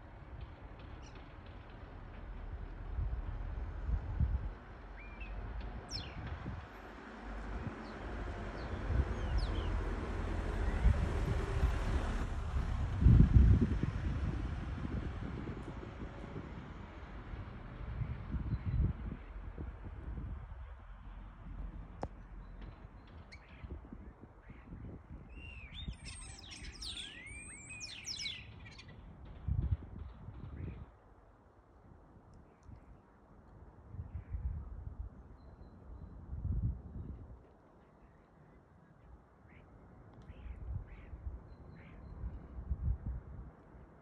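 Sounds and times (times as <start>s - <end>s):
wind rumble on microphone: 0.0s - 38.2s, 39.1s - 44.0s
starlings whistling: 25.4s - 28.8s.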